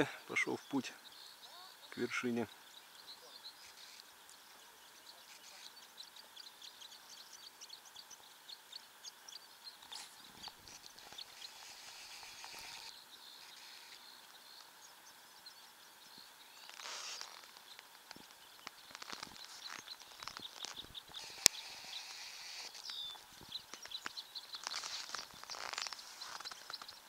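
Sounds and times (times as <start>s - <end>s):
light hiss: 0.0s - 27.0s
small clicks and crackles: 3.2s - 6.8s, 9.7s - 14.8s, 16.1s - 27.0s.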